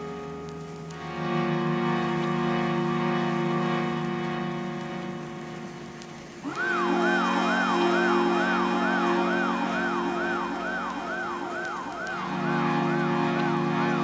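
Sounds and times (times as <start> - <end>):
dance music with sustained chords: 0.0 - 14.0
siren-like synth wail: 6.4 - 14.0.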